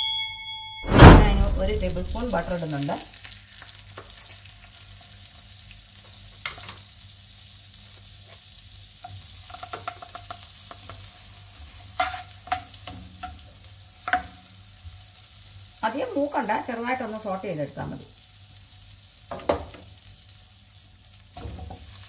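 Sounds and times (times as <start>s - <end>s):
butter sizzling in a pan: 2.6s - 22.0s
spatula scraping a pan: 11.9s - 12.6s.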